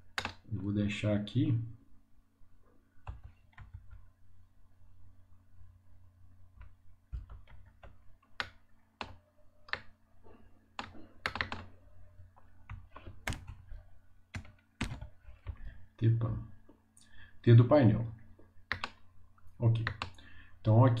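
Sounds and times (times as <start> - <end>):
keyboard and mouse clicking: 0.1 - 0.4, 3.1 - 4.0, 6.6 - 9.9, 10.8 - 11.7, 12.7 - 13.7, 14.3 - 15.6, 18.7 - 19.0, 19.8 - 20.2.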